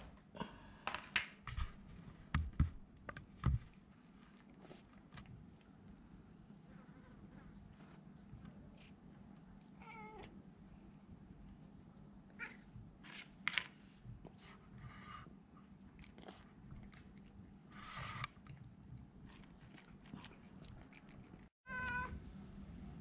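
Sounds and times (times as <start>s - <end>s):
cat meow: 9.8s - 10.3s, 21.7s - 22.2s
cat crunching dry kibble: 18.0s - 21.5s.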